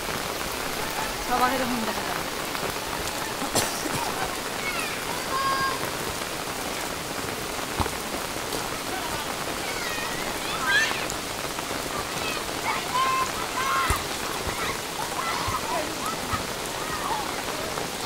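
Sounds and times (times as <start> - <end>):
heavy rain pouring: 0.0 - 18.0.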